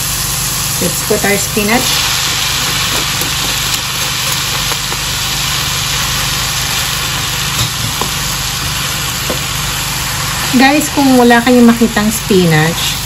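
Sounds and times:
spinach sizzling in oil: 0.0s - 13.0s
wooden spatula knocking: 2.6s - 5.1s.

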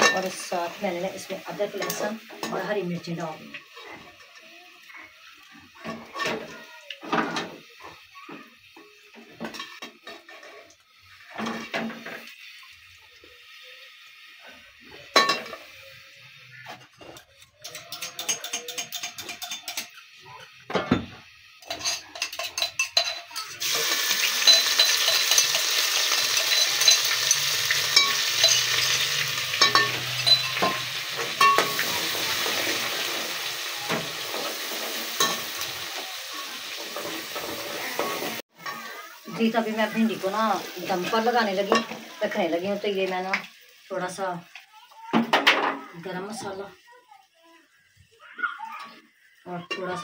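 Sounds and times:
metal utensils clinking on pot: 0.0s - 4.4s, 9.2s - 12.4s, 15.1s - 15.7s, 16.7s - 39.6s, 40.2s - 42.1s, 49.5s - 50.0s
spices sizzling in hot oil: 0.0s - 50.0s
metal spoon scraping pot: 16.9s - 20.1s, 21.6s - 32.4s.

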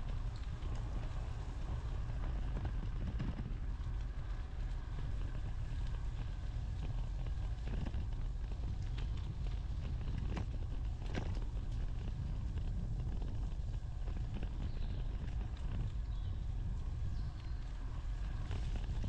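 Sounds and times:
small clicks and rattles: 0.0s - 19.0s
wind and rolling rumble: 0.0s - 19.0s.

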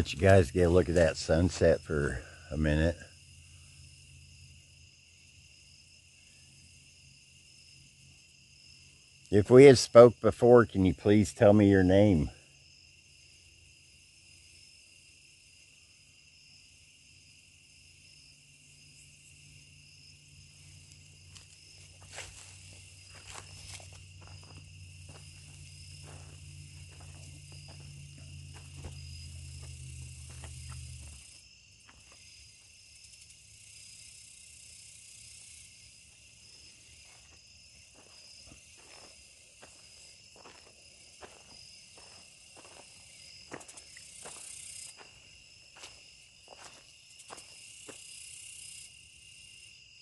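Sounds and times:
insects trilling: 0.0s - 50.0s
low hum: 20.1s - 31.4s.

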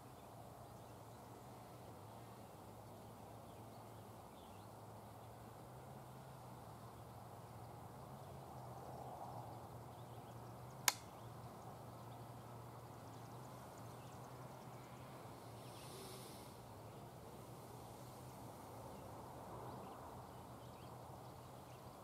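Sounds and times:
sharp click: 10.8s - 11.1s.

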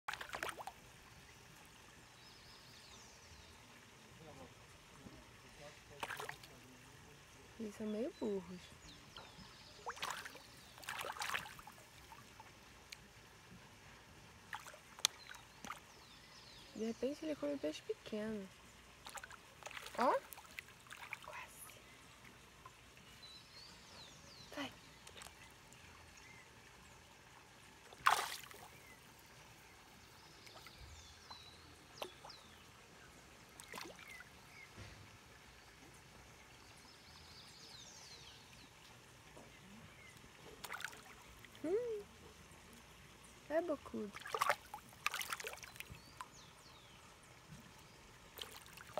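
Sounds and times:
fish splashing at surface: 0.1s - 0.7s, 6.0s - 6.5s, 9.8s - 12.1s, 27.9s - 28.8s, 44.1s - 45.9s
fish splashing water: 0.1s - 1.0s, 5.9s - 6.6s, 9.6s - 13.1s, 14.4s - 16.0s, 18.8s - 21.3s, 27.7s - 29.1s, 33.4s - 34.9s, 40.5s - 41.7s, 44.0s - 46.2s, 48.3s - 48.9s.

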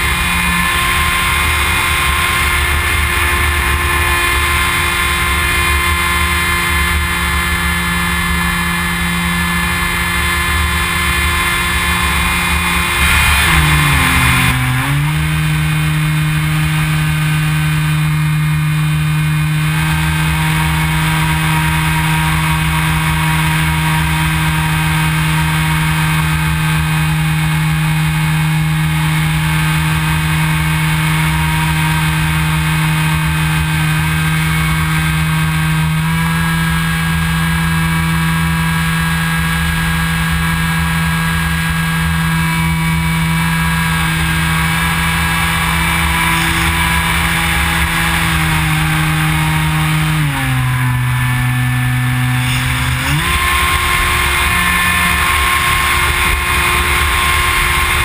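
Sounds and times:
model plane motor droning: 0.0s - 58.0s.

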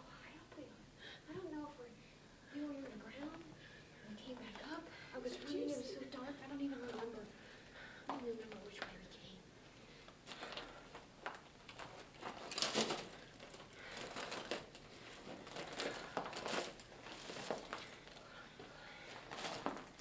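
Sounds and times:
strap rustling: 10.2s - 18.4s, 19.0s - 20.0s.

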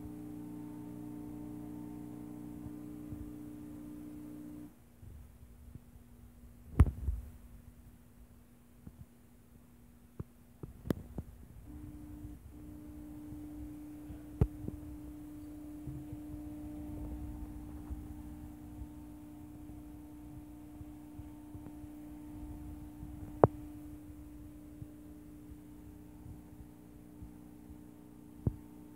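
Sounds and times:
small electric motor humming: 0.0s - 4.7s, 11.7s - 28.9s.

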